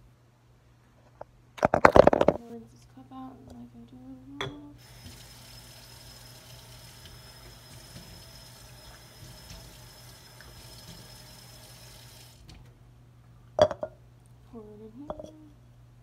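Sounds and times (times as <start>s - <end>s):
plastic cup being rinsed: 4.8s - 12.6s
tap water running: 4.8s - 12.7s.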